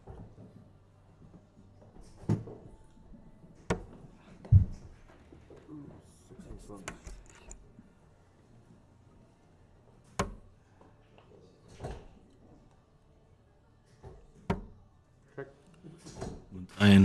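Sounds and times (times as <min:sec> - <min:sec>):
darts hitting dartboard: 0:03.6 - 0:04.0, 0:10.0 - 0:10.5, 0:14.0 - 0:14.8.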